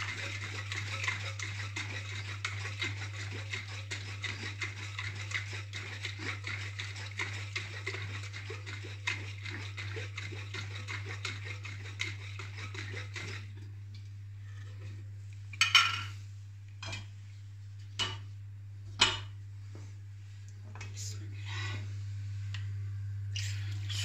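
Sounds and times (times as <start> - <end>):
jar being shaken sloshing: 0.0 - 13.5
low hum: 13.6 - 24.0.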